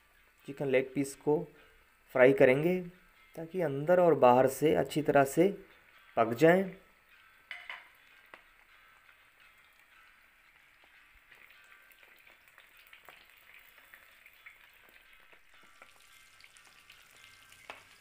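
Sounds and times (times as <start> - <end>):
chicken deep-frying in oil: 3.6 - 18.0
spoon clicking on pan: 7.5 - 8.6.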